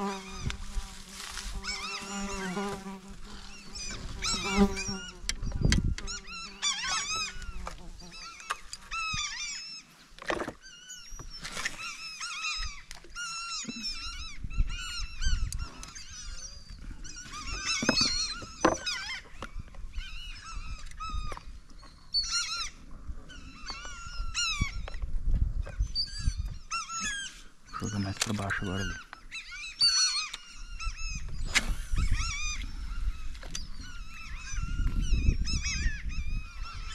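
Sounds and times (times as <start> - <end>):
flock of birds crying: 0.0 - 5.3, 6.0 - 10.0, 10.6 - 25.0, 26.0 - 36.9.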